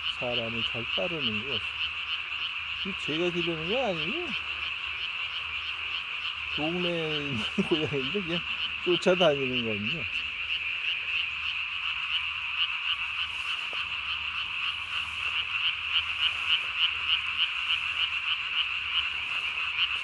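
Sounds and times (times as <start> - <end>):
chorus of tree frogs calling: 0.0 - 20.0.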